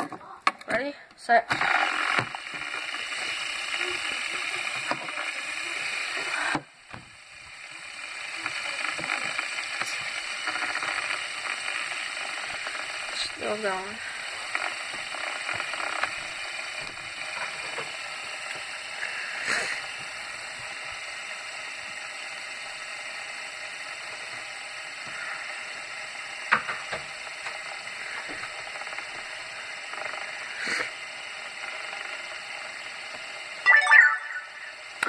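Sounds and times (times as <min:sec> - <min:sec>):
fidget spinner whirring rattle: 0:00.7 - 0:35.0.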